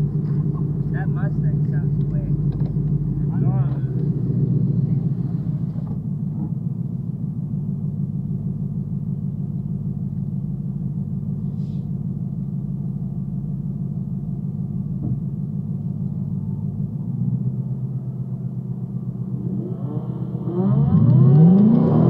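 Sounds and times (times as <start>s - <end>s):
car engine rumbling: 0.0s - 22.0s.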